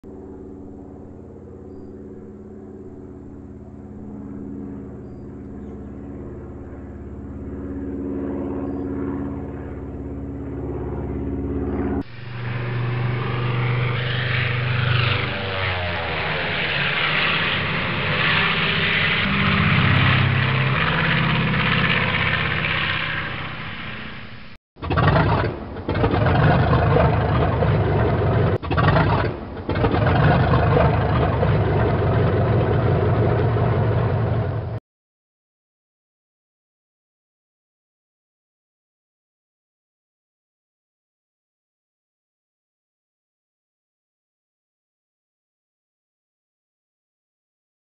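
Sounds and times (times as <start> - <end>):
propeller airplane engine drone: 0.0 - 34.8.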